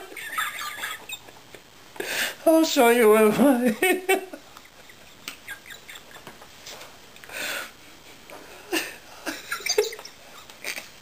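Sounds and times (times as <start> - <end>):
man laughing breathily: 8.6 - 10.9.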